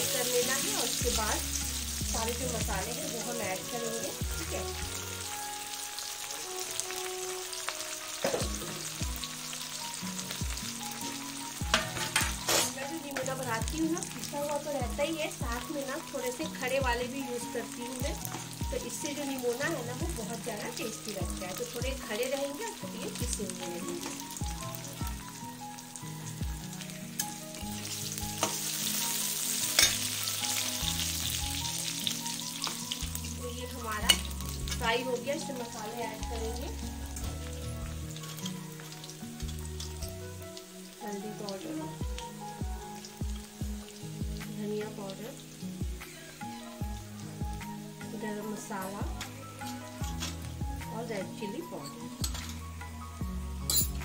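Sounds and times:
onions sizzling in oil: 0.0 - 54.0
metal spatula scraping pan: 11.7 - 12.8, 29.7 - 30.2.

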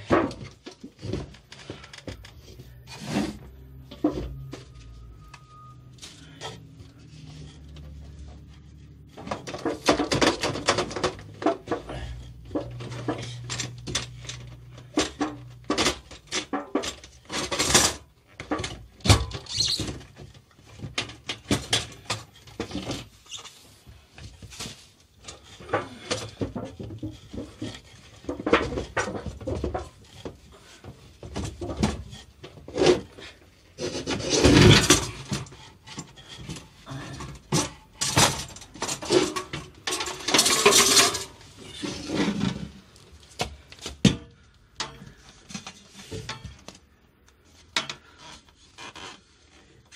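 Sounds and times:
metal pail scraping: 0.0 - 8.2, 24.6 - 43.0
metal lid clanking and rattling: 9.2 - 11.8, 33.8 - 42.8.

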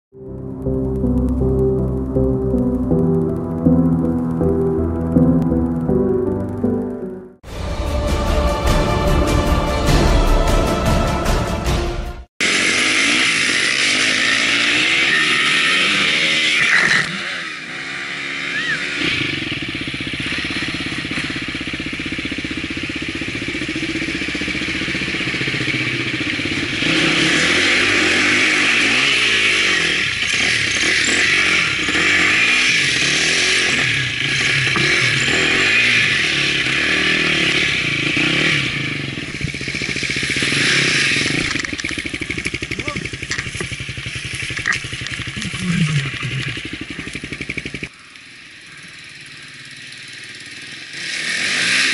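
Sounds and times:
dirt bike engine revving: 12.4 - 51.9.

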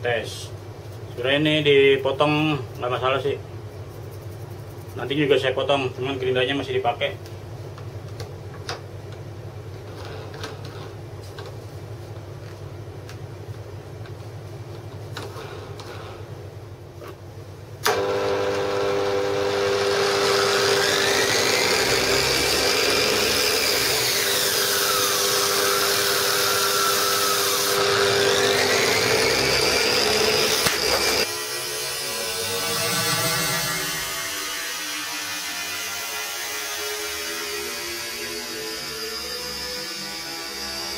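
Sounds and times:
angle grinder whining: 17.8 - 40.9.

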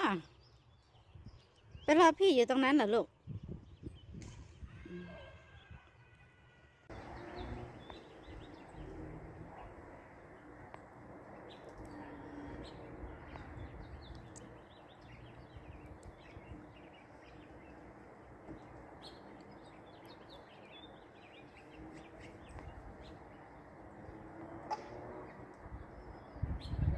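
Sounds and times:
small birds chirping: 0.0 - 6.2, 6.8 - 26.9.

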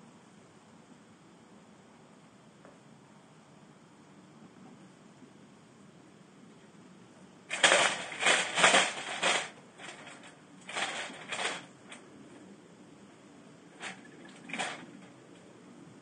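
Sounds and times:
cage trap doors slamming shut: 7.5 - 11.7, 13.8 - 15.0
wire cage rattling: 7.5 - 12.0, 13.7 - 15.2.

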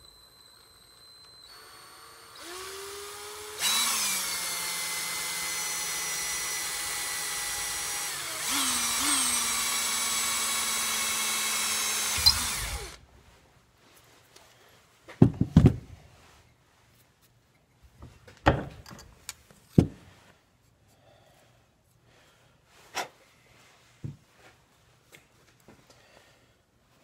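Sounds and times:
cordless drill boring metal: 0.0 - 13.1.

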